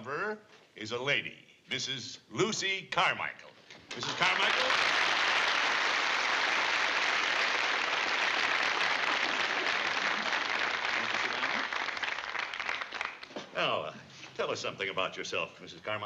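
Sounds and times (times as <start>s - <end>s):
audience applauding: 3.9s - 13.5s.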